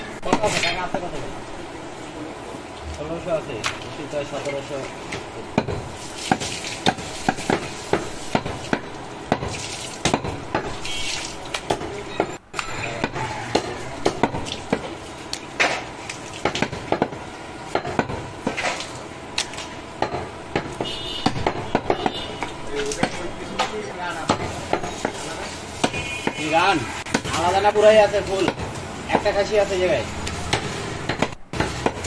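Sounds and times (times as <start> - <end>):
cleaver chopping meat on wood: 20.0 - 23.2, 25.8 - 26.5, 27.1 - 27.5.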